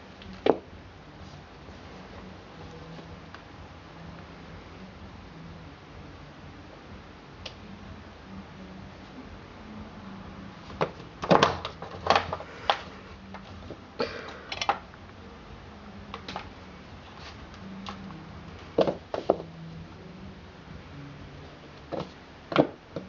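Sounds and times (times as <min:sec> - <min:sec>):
plastic bottles clattering on floor: 0:10.8 - 0:12.9.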